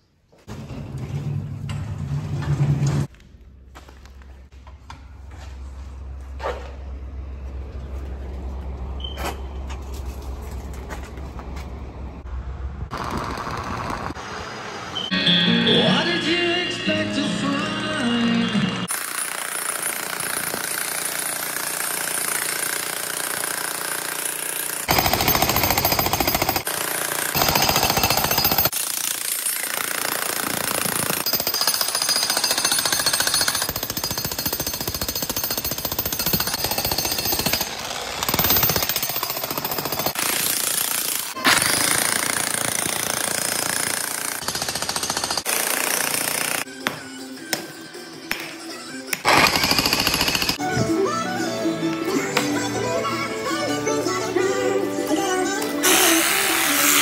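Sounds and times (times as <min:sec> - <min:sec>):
demolition hammer pounding concrete: 0:18.9 - 0:46.6.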